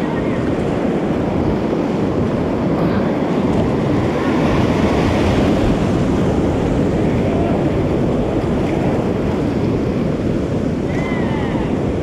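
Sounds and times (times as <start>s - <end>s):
whitewater rushing around kayak: 0.0s - 12.0s.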